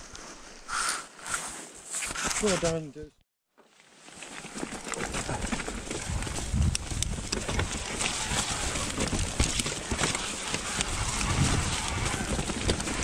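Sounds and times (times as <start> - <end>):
mountain bike on stony trail: 3.7 - 13.0
bike knocking and rattling: 4.1 - 13.0.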